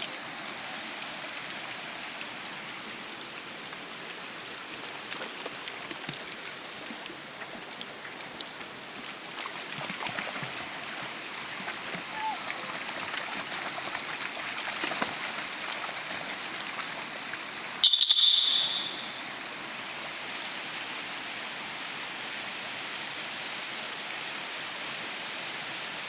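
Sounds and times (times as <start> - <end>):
stream running over rocks: 0.0 - 26.0
dogs splashing in water: 4.8 - 17.2.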